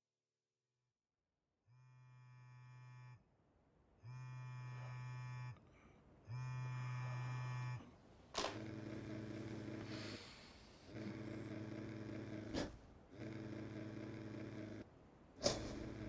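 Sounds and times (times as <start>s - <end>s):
phone vibrating: 1.8s - 3.2s, 4.0s - 5.6s, 6.2s - 10.0s.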